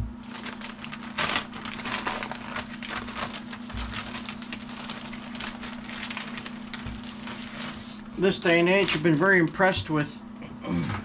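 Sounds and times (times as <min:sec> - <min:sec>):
steady low hum: 0:00.0 - 0:11.0
plastic bags crinkling: 0:00.2 - 0:10.0.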